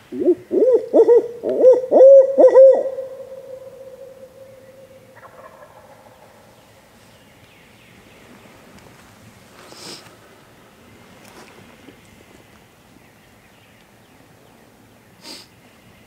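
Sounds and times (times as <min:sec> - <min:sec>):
owl hooting: 0:00.1 - 0:05.9.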